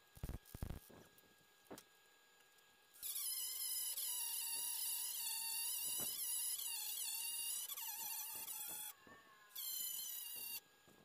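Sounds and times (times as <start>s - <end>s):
angle grinder grinding metal: 3.0s - 10.6s.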